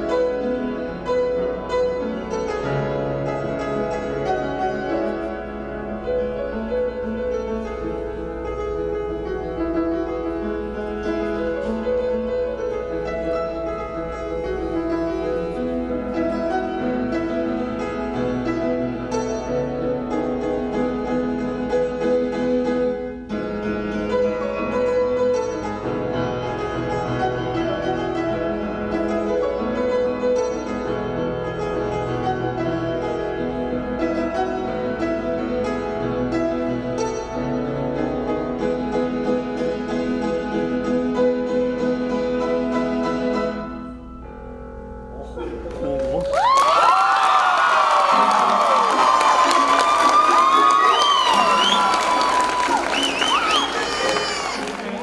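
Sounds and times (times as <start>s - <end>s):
piano playing: 0.0s - 55.0s.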